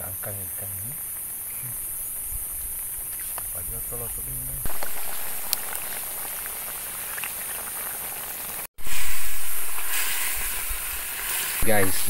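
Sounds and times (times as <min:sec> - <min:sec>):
broth simmering hiss: 0:00.0 - 0:12.0.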